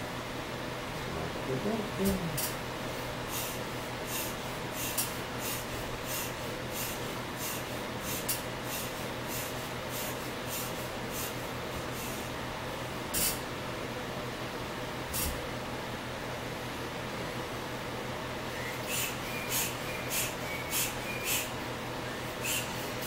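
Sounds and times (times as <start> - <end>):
air pump hissing: 3.2 - 12.3, 18.5 - 23.0.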